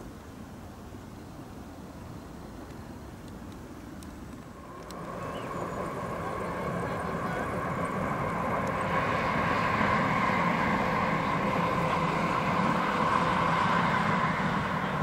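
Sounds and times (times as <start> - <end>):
electric locomotives rumbling and whining: 4.4 - 15.0.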